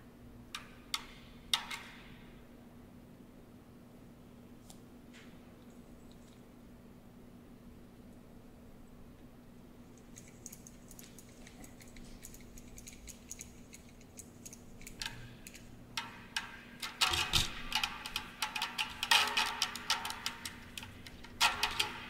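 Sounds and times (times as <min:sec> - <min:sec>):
small hard objects clicking: 0:10.0 - 0:22.0.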